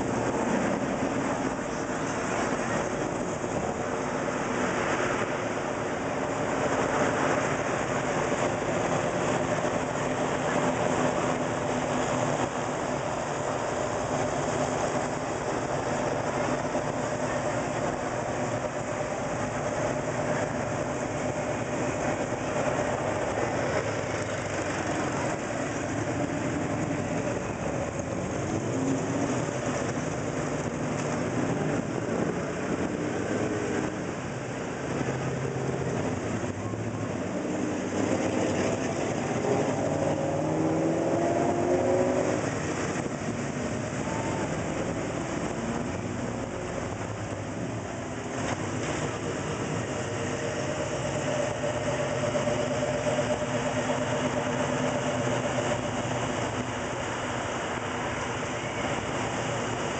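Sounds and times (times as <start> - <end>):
car engines rumbling in traffic: 0.0 - 59.9.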